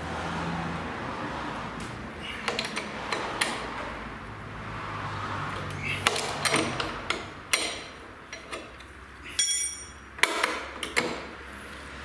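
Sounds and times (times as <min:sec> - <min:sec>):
wrench clicking against metal: 0:05.6 - 0:11.2
sharp metal knocks: 0:05.6 - 0:11.4.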